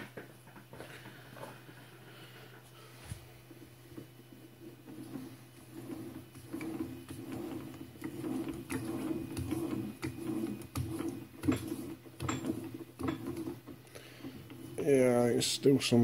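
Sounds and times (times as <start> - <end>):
metal thread clicking and scraping: 4.9 - 13.6.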